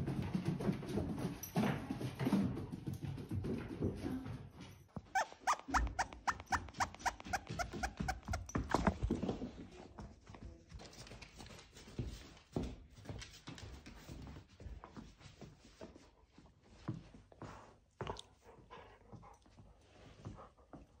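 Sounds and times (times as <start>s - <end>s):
puppy whining in high squeaks: 5.0s - 8.9s.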